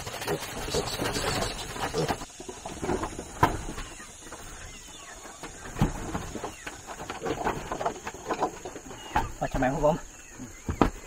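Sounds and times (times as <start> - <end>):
piglets squealing and grunting: 0.1 - 2.3.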